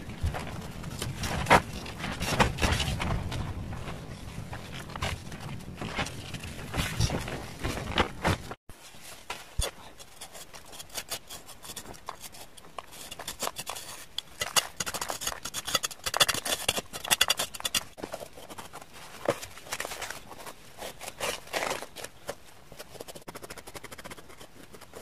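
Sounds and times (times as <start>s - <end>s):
gloved hand scraping cement: 9.4s - 25.0s.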